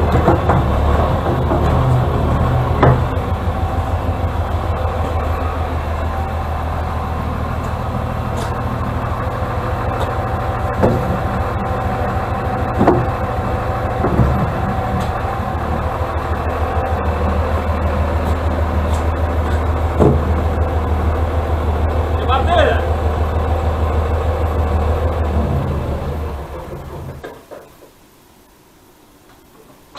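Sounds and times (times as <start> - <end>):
short knocks: 0.0 - 3.3, 12.7 - 13.3, 14.0 - 15.8
steady whine: 0.0 - 27.3
diesel engine running: 0.0 - 27.4.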